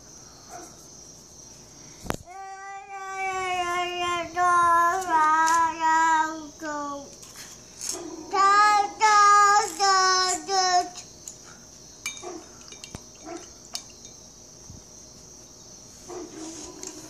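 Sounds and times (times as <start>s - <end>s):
steady high hiss: 0.0s - 17.0s
child singing wordless notes: 2.3s - 7.1s, 8.3s - 11.1s.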